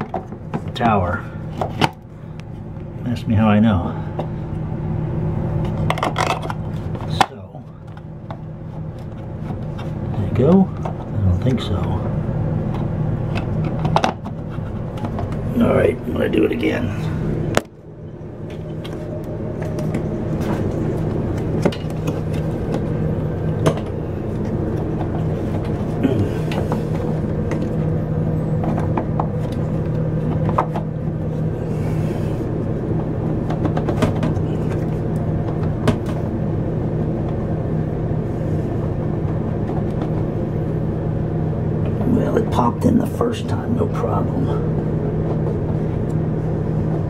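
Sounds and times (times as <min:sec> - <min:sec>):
low machine hum: 0:00.0 - 0:47.0.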